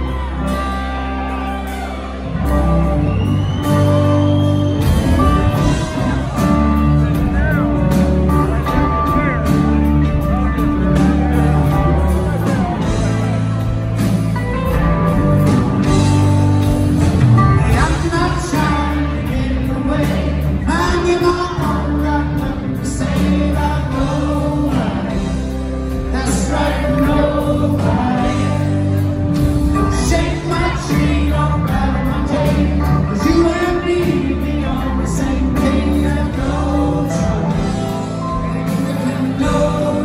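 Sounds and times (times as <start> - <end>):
live rock band playing: 0.0 - 40.0
male lead vocal: 17.4 - 40.0.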